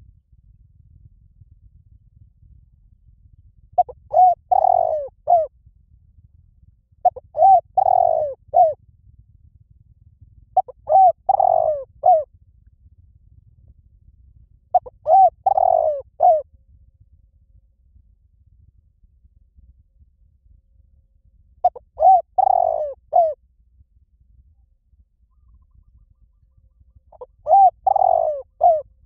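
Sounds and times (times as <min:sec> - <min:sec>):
dove cooing: 0:03.8 - 0:05.5, 0:07.0 - 0:08.8, 0:10.6 - 0:12.2, 0:14.8 - 0:16.4, 0:21.6 - 0:23.4, 0:25.3 - 0:28.9.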